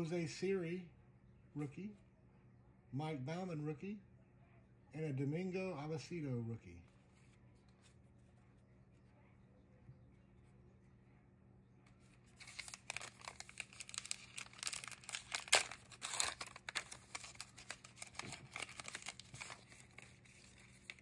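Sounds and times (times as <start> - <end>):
plastic wrapper tearing and crinkling: 12.1 - 21.0.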